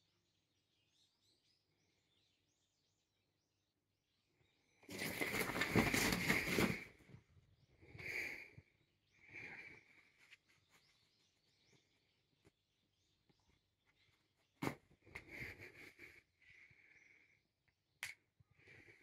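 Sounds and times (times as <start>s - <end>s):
fabric rustling: 4.9s - 6.9s.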